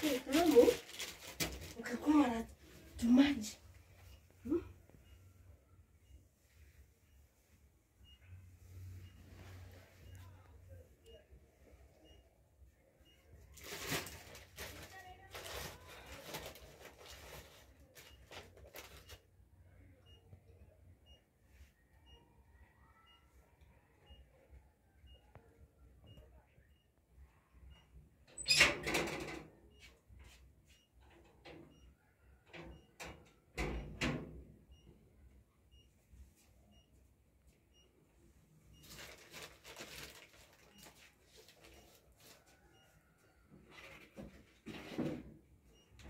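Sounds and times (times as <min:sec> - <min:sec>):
bread wrapper crinkling: 0:00.0 - 0:01.9, 0:38.8 - 0:42.4.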